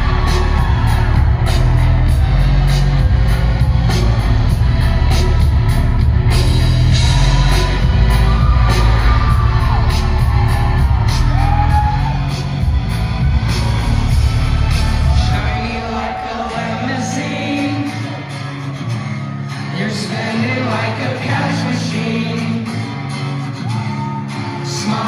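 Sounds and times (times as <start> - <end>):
steady drum beat: 0.0 - 16.6
live rock band playing: 0.0 - 20.1.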